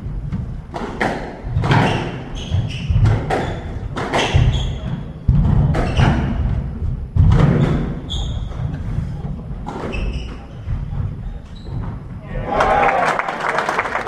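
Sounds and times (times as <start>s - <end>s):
shoe squeaks: 1.7s - 5.2s, 5.8s - 6.4s, 7.6s - 12.2s.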